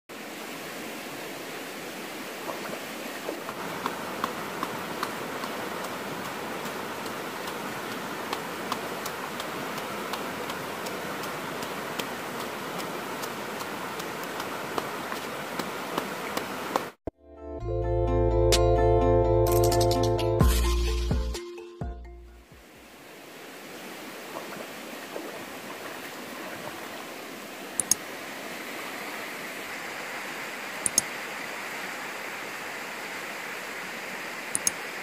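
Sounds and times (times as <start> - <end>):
stream water rushing: 0.1 - 17.0, 22.5 - 35.0.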